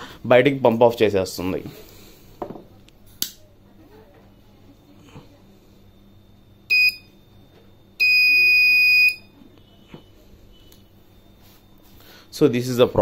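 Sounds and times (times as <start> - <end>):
gas alarm buzzer beeps: 6.6 - 7.3, 8.0 - 12.2.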